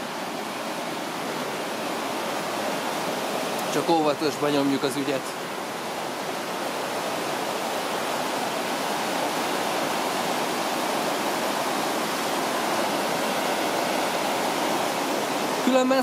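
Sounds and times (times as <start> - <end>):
water rushing over rocks: 0.0 - 16.0.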